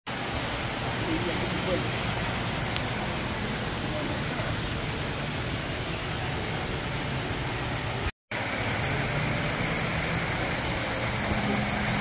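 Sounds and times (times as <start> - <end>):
indoor waterfall rushing: 0.1 - 12.0.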